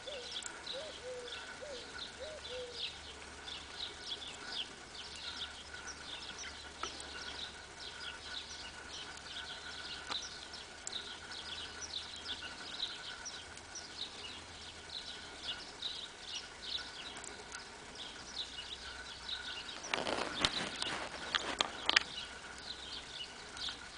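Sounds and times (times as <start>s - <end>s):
small birds chirping: 0.0s - 23.9s
bird cracking seeds: 18.9s - 22.7s.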